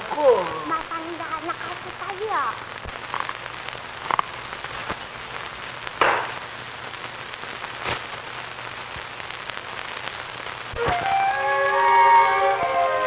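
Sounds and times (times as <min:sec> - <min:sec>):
burst of noise: 0:00.0 - 0:13.0
film soundtrack hiss and crackle: 0:00.0 - 0:13.0
clicks and pops: 0:02.8 - 0:05.1, 0:06.0 - 0:06.5.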